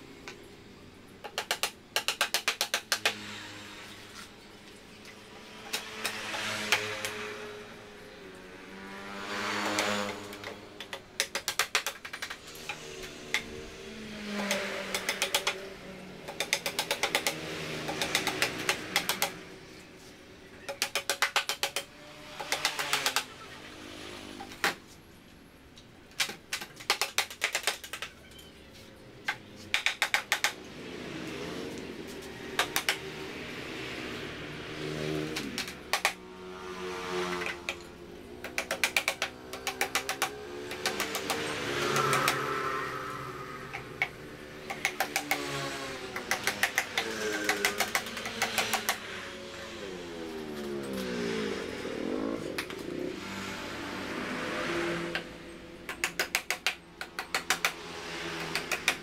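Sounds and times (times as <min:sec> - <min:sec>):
rapid mechanical clicking: 0:01.2 - 0:03.2, 0:09.6 - 0:13.5, 0:14.3 - 0:19.4, 0:20.7 - 0:23.4, 0:26.1 - 0:28.1, 0:29.3 - 0:30.6, 0:32.6 - 0:33.0, 0:35.4 - 0:36.2, 0:38.4 - 0:42.4, 0:43.7 - 0:49.0, 0:55.9 - 0:59.0
machine tone rising and falling: 0:41.4 - 0:44.6.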